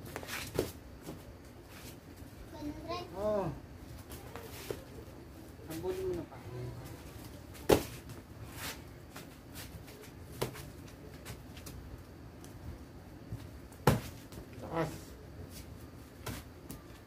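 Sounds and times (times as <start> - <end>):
kicks smacking kick paddles: 13.8 - 14.3.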